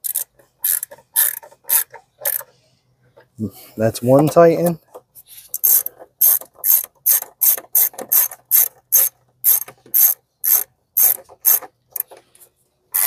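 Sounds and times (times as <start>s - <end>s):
socket ratchet clicking: 0.0s - 2.4s, 5.6s - 12.1s.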